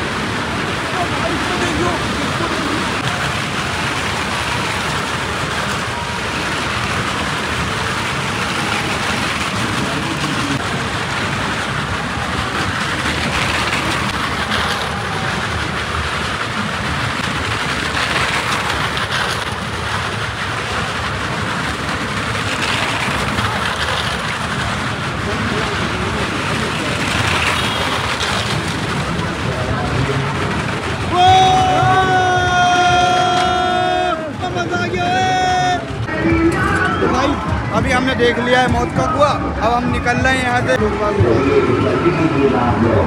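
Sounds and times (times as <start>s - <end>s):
engines and wheels on wooden planks: 0.0s - 43.0s.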